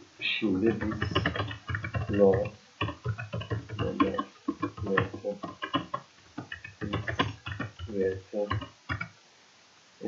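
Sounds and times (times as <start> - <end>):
keyboard typing: 0.6 - 9.2.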